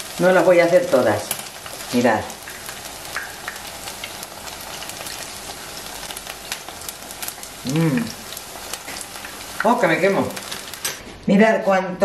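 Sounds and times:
food sizzling in hot oil: 0:00.0 - 0:11.0
person vocal sound: 0:07.6 - 0:08.2.

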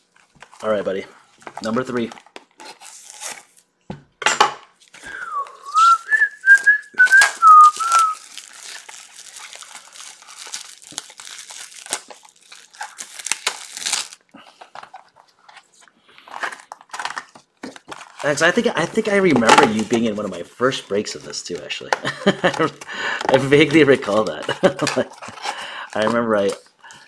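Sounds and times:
plastic wrap crinkling and tearing: 0:01.5 - 0:03.7, 0:04.8 - 0:15.3, 0:16.2 - 0:27.0
person whistling a tune: 0:05.0 - 0:08.2.

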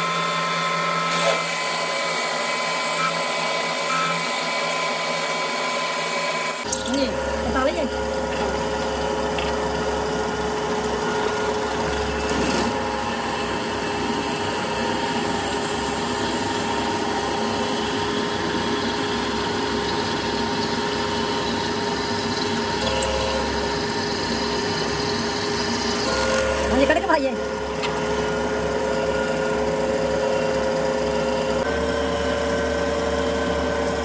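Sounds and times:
drill bit cutting metal: 0:00.0 - 0:08.4, 0:10.8 - 0:27.3
drill press motor hum: 0:00.0 - 0:34.0.

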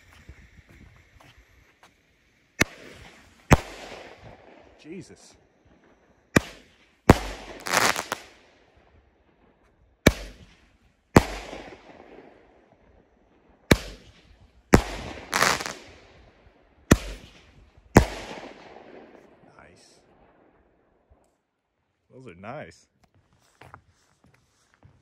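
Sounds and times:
firework crackling: 0:00.0 - 0:05.6, 0:06.2 - 0:08.7, 0:10.0 - 0:12.6, 0:13.6 - 0:16.2, 0:16.9 - 0:19.0.

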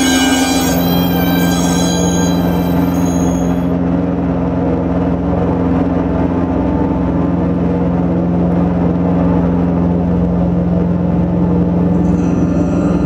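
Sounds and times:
high ringing tones: 0:00.0 - 0:04.0, 0:11.9 - 0:13.0
electronic drone: 0:00.0 - 0:05.5, 0:11.4 - 0:13.0.

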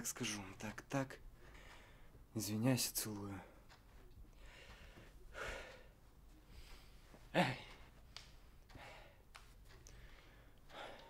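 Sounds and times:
man speaking: 0:00.0 - 0:01.2, 0:02.3 - 0:03.6, 0:07.3 - 0:07.9
faint clicks: 0:07.7 - 0:11.0.

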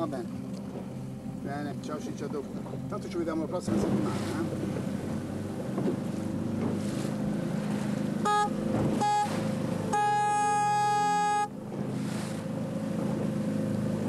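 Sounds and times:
motorboat engine running: 0:00.0 - 0:14.0
boat horn blasts: 0:08.1 - 0:11.8.

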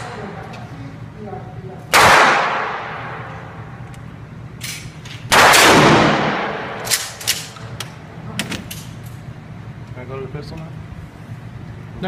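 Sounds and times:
gunshot with echoing tail: 0:05.3 - 0:06.8
gun handling clicks: 0:06.8 - 0:09.2.

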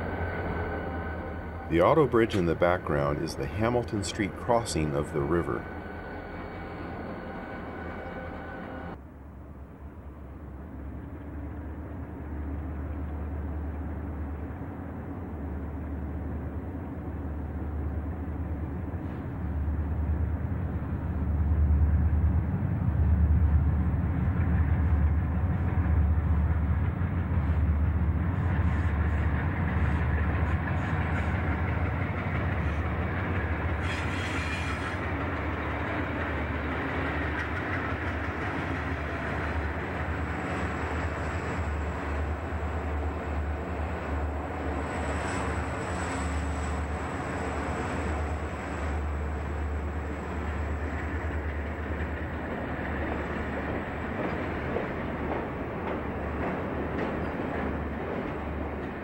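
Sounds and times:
diesel locomotives rumbling: 0:00.0 - 0:59.0
train cars clicking over rail joints: 0:28.5 - 0:42.3, 0:50.7 - 0:59.0.

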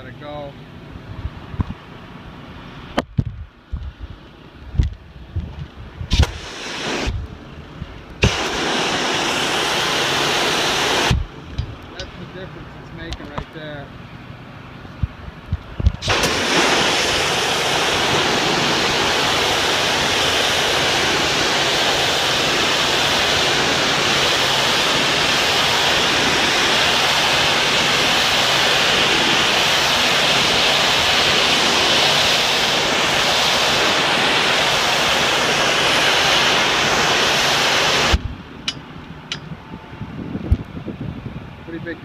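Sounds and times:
pressure washer spraying concrete: 0:06.1 - 0:07.2, 0:08.2 - 0:11.3, 0:16.0 - 0:38.2.

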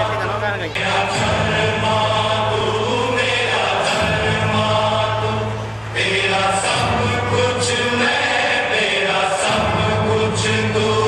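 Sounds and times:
choir-like chanting song: 0:00.0 - 0:11.0.

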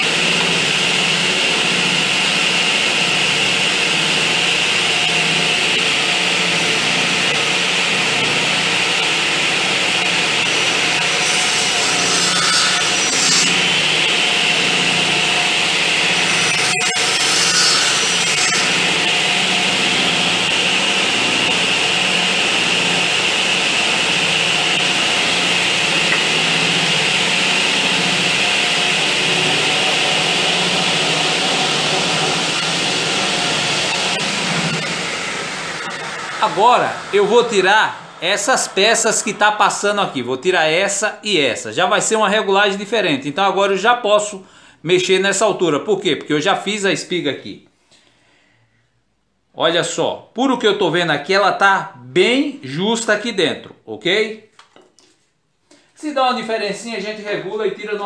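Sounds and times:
saw blade cutting wood: 0:00.0 - 0:40.3
circular saw running: 0:00.0 - 0:44.4.

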